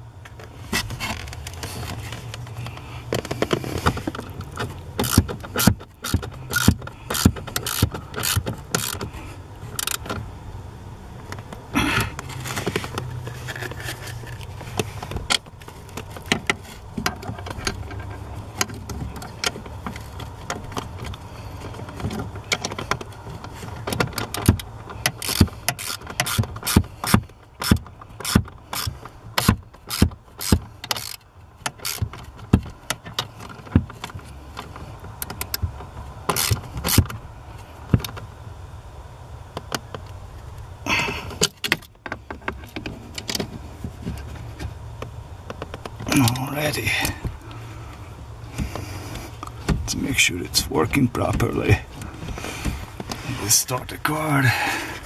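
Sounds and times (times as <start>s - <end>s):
steady low hum: 0.0s - 55.0s
hand ratchet clicking: 4.1s - 9.1s, 9.8s - 10.1s, 24.2s - 32.3s, 36.3s - 37.1s.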